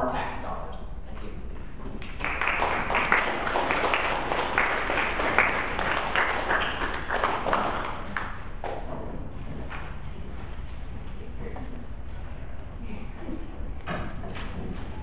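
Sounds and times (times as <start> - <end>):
audience applauding: 2.0 - 8.5.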